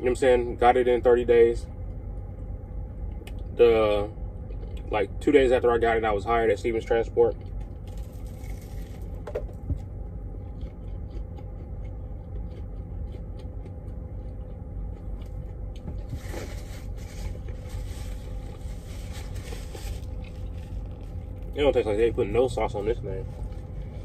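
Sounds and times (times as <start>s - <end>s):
truck cab hum: 0.0s - 24.0s
sandwich wrapper rustling: 7.7s - 9.2s, 15.9s - 21.9s, 22.5s - 24.0s.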